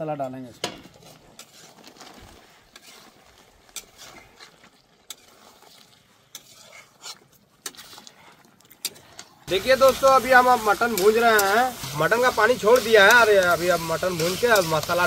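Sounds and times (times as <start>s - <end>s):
spoon scraping a steel pan: 6.3s - 7.9s
faint sizzle: 9.5s - 15.0s.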